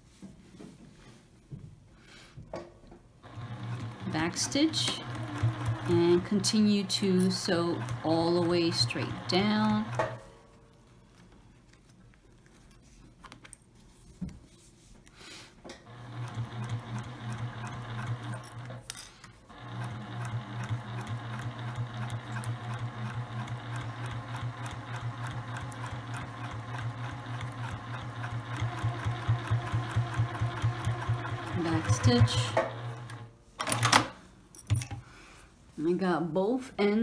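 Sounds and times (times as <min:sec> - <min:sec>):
sewing machine stitching: 0:03.2 - 0:10.3, 0:15.9 - 0:34.1.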